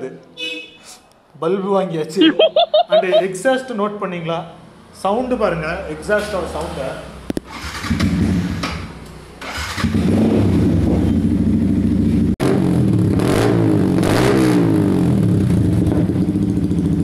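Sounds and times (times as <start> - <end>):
motorcycle engine revving: 7.3 - 17.0.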